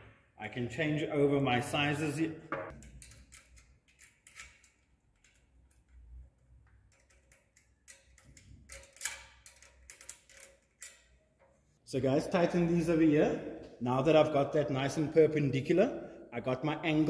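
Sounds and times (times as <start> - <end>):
spanner clicking on bolt: 2.7 - 11.6.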